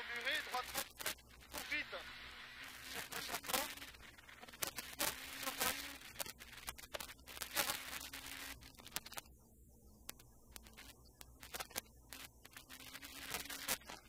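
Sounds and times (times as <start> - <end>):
faint buzzing engine drone: 0.0 - 14.0.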